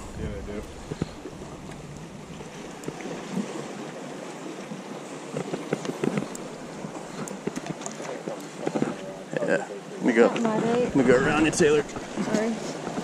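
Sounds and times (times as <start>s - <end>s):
wind buffeting microphone: 0.0s - 3.5s, 10.5s - 13.0s
choppy water lapping: 0.0s - 13.0s
short clicks and splashy ticks: 5.3s - 6.5s.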